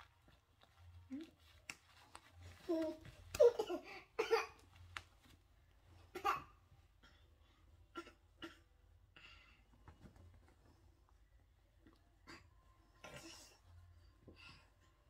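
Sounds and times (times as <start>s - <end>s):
clothes rustling: 0.0s - 6.8s.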